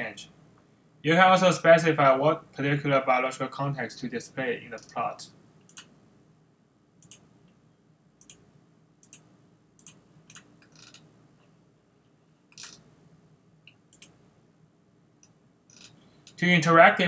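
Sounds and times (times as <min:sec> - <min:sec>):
faint low hum: 0:00.0 - 0:17.0
computer mouse clicking: 0:05.6 - 0:05.9, 0:07.0 - 0:07.2, 0:08.2 - 0:08.4, 0:09.0 - 0:11.1, 0:13.7 - 0:14.2.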